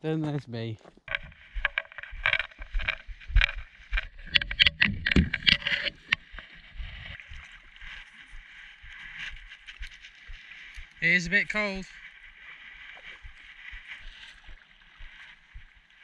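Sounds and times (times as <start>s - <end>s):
paddle splashing water: 1.1s - 16.0s.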